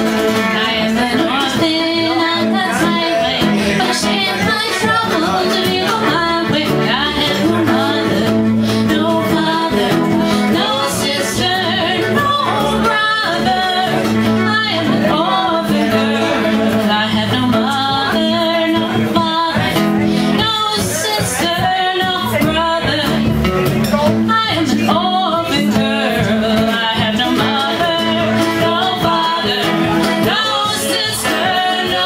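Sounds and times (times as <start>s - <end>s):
string band playing folk music: 0.0s - 32.0s
woman singing: 0.0s - 32.0s.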